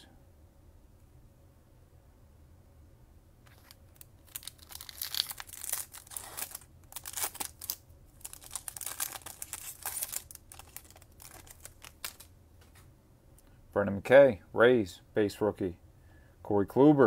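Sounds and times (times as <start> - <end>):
foil wrapper crinkling and tearing: 3.4 - 12.3.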